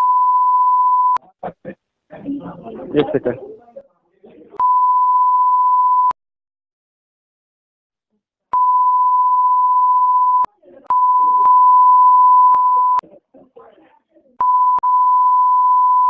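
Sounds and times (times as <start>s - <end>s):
censor bleep: 0.0s - 1.2s, 4.6s - 6.2s, 8.6s - 13.0s, 14.4s - 16.0s
faint speech: 13.0s - 14.5s.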